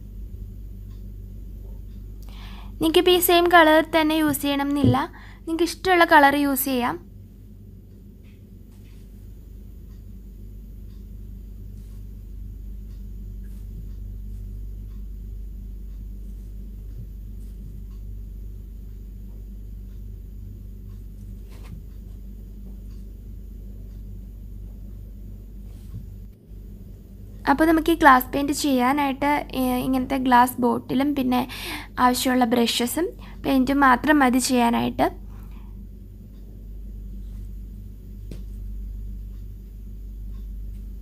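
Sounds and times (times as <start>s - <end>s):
low room hum: 0.0s - 41.0s.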